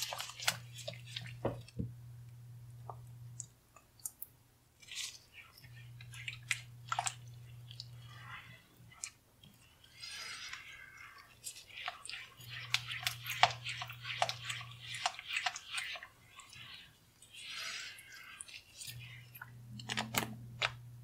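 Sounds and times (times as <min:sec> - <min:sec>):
spatula stirring thick sauce: 0:00.0 - 0:01.6, 0:04.8 - 0:19.6.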